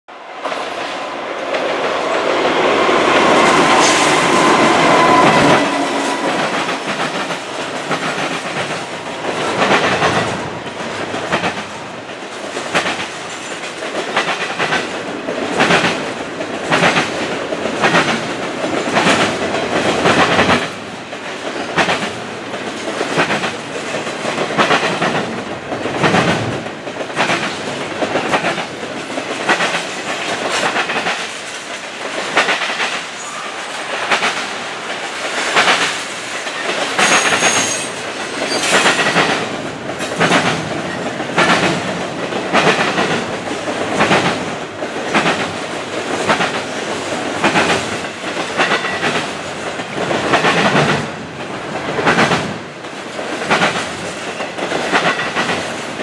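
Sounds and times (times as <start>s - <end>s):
freight train wheels clickety-clack: 0.3s - 56.0s
held high tone: 3.0s - 7.2s.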